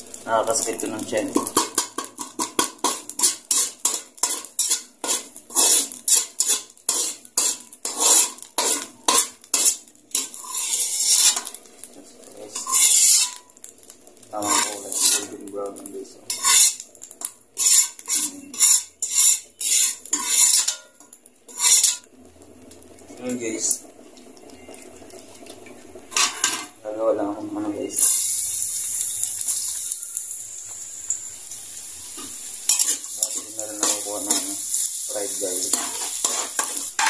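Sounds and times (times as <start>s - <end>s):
metal spoon scraping wok: 1.3s - 11.6s, 12.5s - 13.5s, 14.4s - 15.5s, 16.3s - 22.1s, 32.2s - 37.0s.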